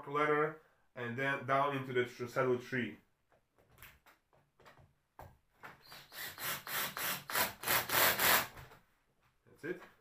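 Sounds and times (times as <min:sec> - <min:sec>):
cordless drill driving screw: 0:05.8 - 0:08.6.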